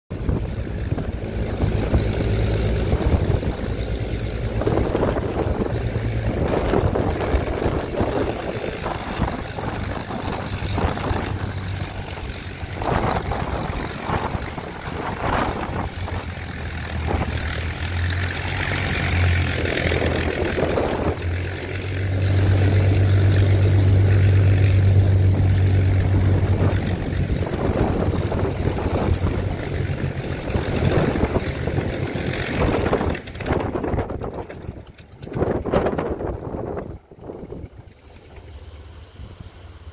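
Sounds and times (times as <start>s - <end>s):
wind buffeting microphone: 0.1s - 39.6s
aircraft engine idling: 0.1s - 39.9s.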